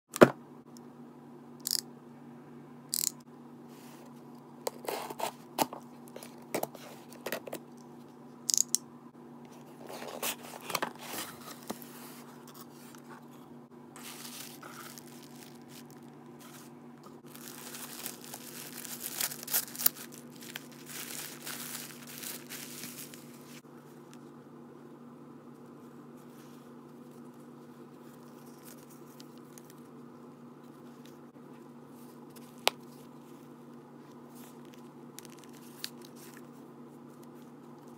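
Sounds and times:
tissue paper rustling: 14.0 - 23.6.

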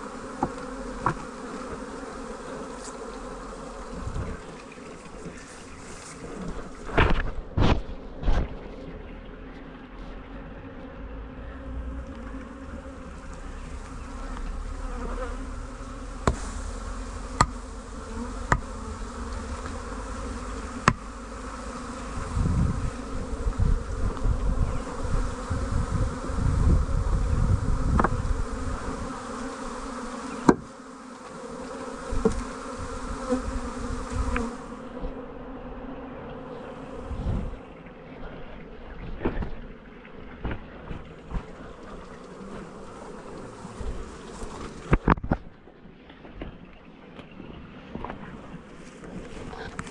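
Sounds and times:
bees buzzing: 0.0 - 45.4
sharp knocks: 17.4 - 17.6.

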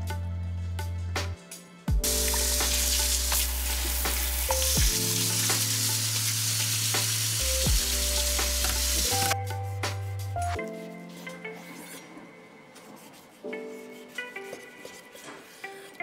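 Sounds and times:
soft background music: 0.0 - 16.0
tap water running: 2.0 - 9.4.

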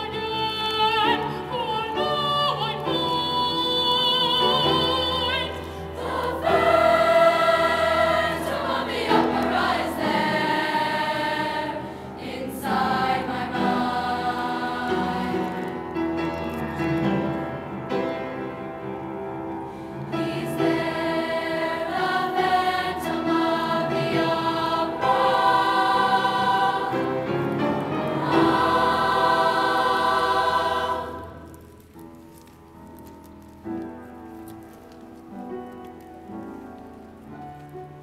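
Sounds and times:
youth choir singing: 4.4 - 16.1, 20.1 - 31.6.

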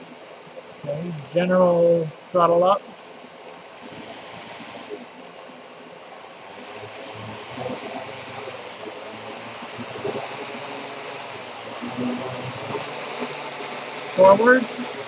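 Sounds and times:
quadcopter motors whirring: 3.6 - 15.0.

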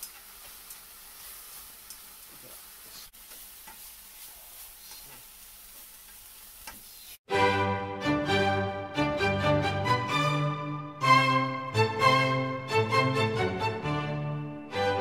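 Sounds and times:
vegetables sizzling in a wok: 0.0 - 7.3.

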